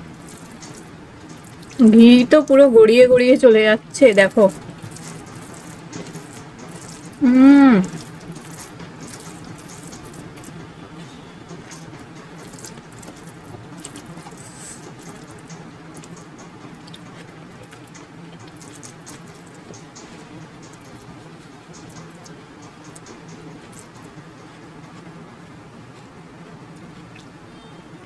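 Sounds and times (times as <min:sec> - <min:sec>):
fingers squishing wet rice: 0:00.2 - 0:01.8, 0:04.4 - 0:07.2, 0:07.8 - 0:10.5, 0:11.7 - 0:16.2.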